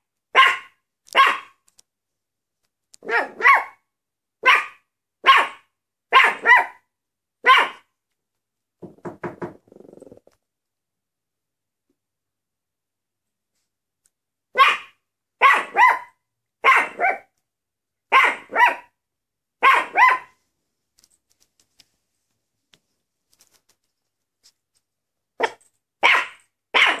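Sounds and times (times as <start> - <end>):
small dog barking: 0.3 - 1.6, 3.0 - 3.8, 4.4 - 7.9, 14.5 - 17.3, 18.1 - 19.0, 19.6 - 20.4, 25.4 - 27.0.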